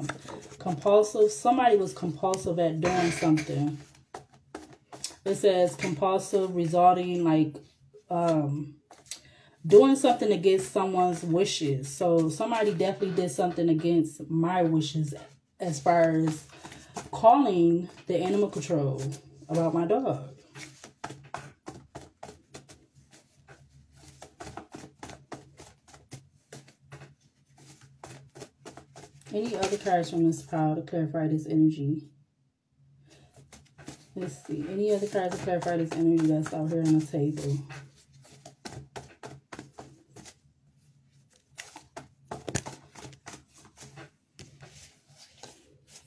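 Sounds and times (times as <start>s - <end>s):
cards being shuffled: 0.0s - 0.9s, 3.6s - 5.5s, 8.9s - 9.2s, 20.4s - 30.2s, 33.1s - 40.5s, 41.2s - 46.0s.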